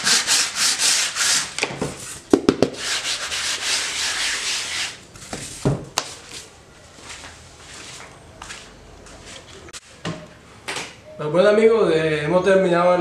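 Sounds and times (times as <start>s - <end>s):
sandpaper rasping: 0.0s - 1.5s, 2.7s - 5.0s.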